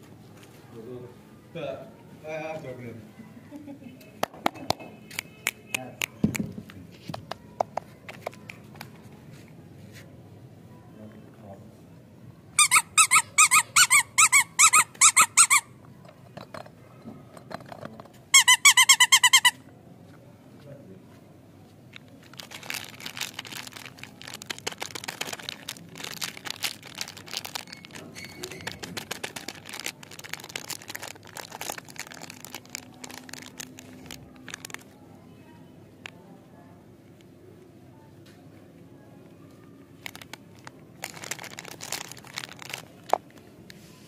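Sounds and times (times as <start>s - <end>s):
squeaky rubber toy squeaking: 12.6s - 15.8s, 18.3s - 19.6s, 22.4s - 33.6s
plastic wrapper crinkling: 21.9s - 35.0s, 40.0s - 43.5s.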